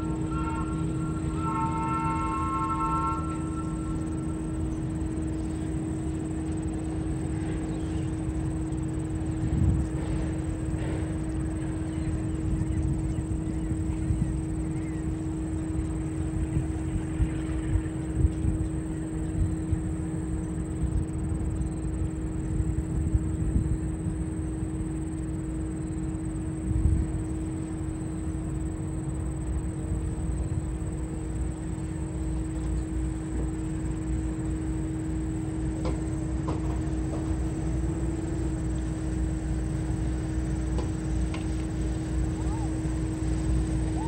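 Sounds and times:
uneven low rumble: 0.0 - 7.6
steady machine hum: 0.0 - 44.0.

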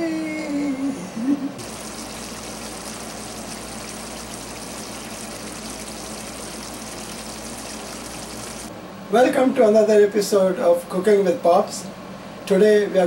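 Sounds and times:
gravy simmering bubbling hiss: 1.6 - 8.7.

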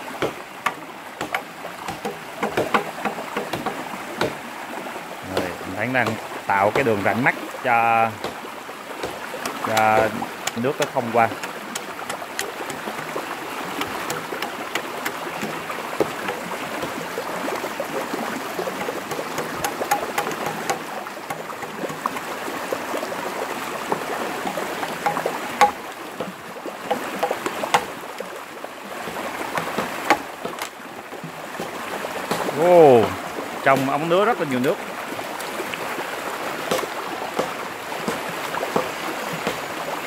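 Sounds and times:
stream water rushing: 0.0 - 40.0
machete cutting bamboo: 0.2 - 4.4, 8.1 - 8.4, 9.0 - 16.9, 18.8 - 22.1, 24.5 - 28.0, 29.1 - 30.8, 36.6 - 39.7.

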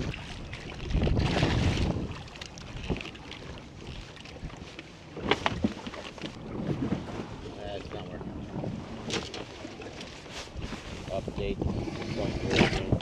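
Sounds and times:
wind noise on microphone: 0.0 - 3.6, 10.5 - 13.0.

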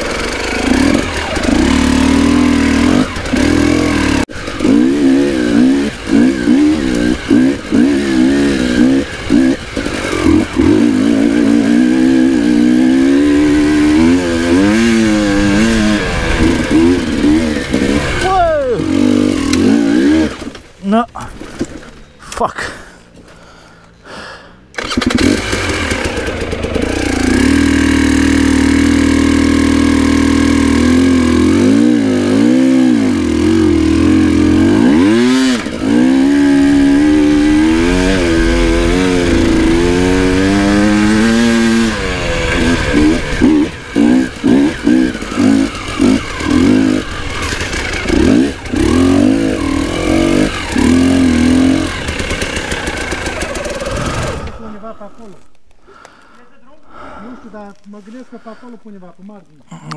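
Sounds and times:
motorcycle engine revving: 0.0 - 23.3, 24.6 - 55.6.

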